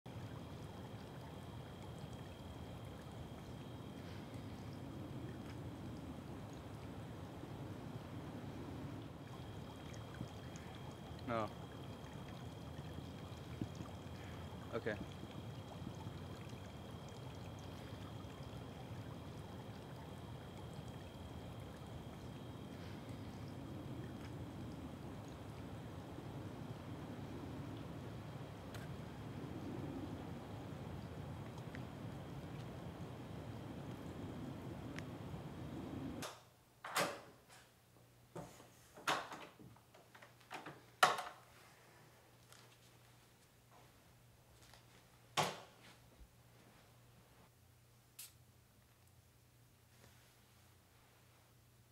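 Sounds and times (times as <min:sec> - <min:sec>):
fountain water splashing: 0:00.1 - 0:36.2
faint high whine: 0:00.1 - 0:36.5
faint steady hum: 0:00.1 - 0:51.9.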